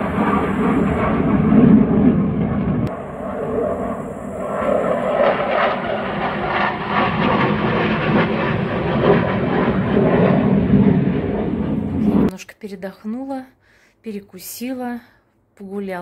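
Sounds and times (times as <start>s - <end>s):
fighter jet engine roar: 0.0s - 12.3s.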